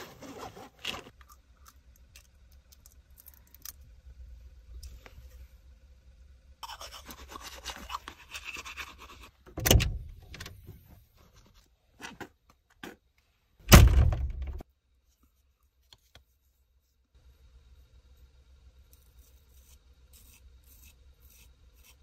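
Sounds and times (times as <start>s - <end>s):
loud thunks: 13.7s - 14.6s.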